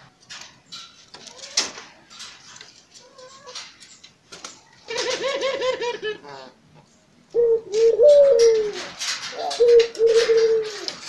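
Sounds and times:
dove cooing: 0:07.3 - 0:11.0.

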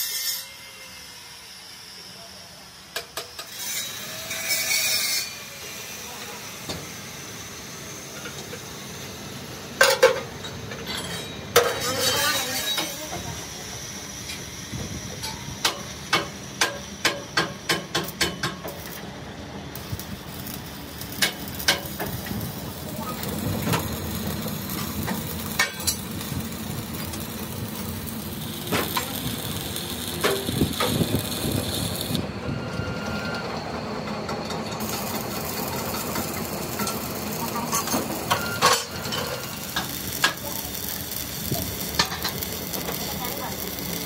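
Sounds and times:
arc welder crackling: 0:03.0 - 0:32.3, 0:34.8 - 0:44.0.

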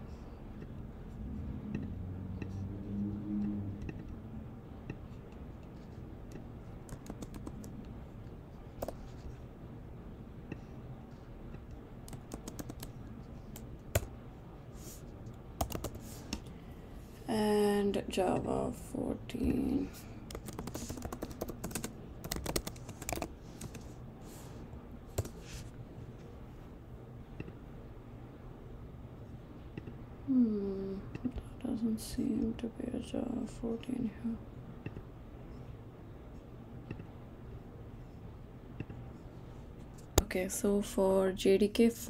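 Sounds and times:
computer keyboard typing: 0:05.9 - 0:07.8, 0:08.8 - 0:09.2, 0:12.0 - 0:14.1, 0:15.6 - 0:16.0, 0:20.2 - 0:23.9, 0:25.1 - 0:25.4.

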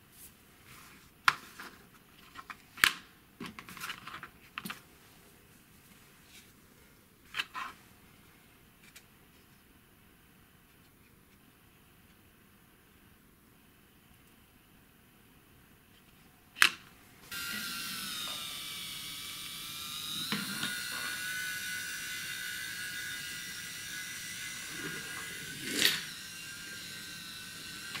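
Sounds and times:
toy train motor whining: 0:17.3 - 0:28.0.

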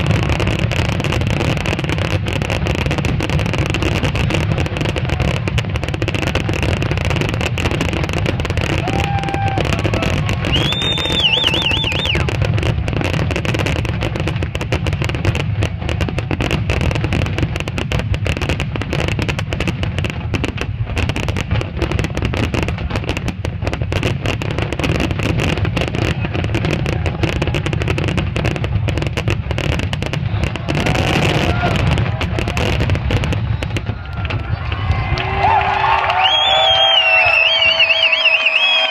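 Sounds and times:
fireworks bangs and crackles: 0:00.0 - 0:38.9
high wavering firework whistle: 0:08.6 - 0:12.3, 0:33.3 - 0:38.9.

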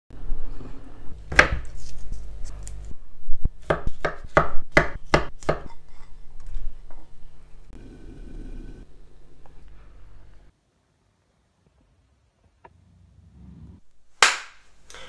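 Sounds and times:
knife chopping on wooden board: 0:03.6 - 0:05.7.

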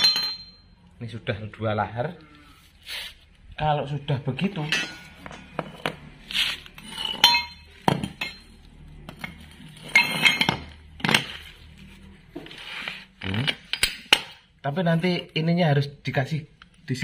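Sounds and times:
metal parts clinking on concrete: 0:00.0 - 0:00.7, 0:04.6 - 0:05.9, 0:06.7 - 0:11.6, 0:13.2 - 0:14.4
metal scraping: 0:04.4 - 0:14.4.

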